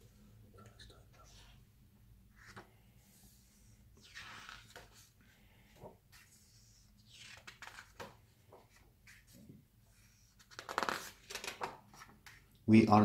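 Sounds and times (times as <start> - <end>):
pages turning: 4.0 - 5.1, 5.8 - 9.4, 10.3 - 12.4.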